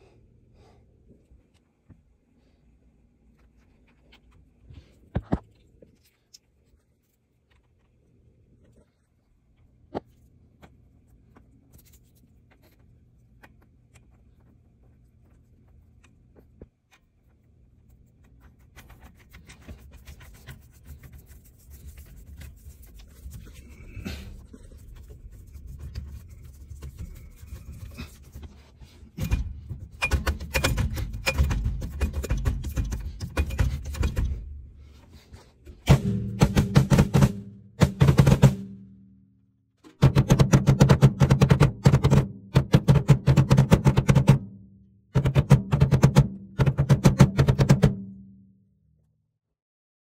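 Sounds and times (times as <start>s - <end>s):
clicks and knocks: 29.2s - 34.5s.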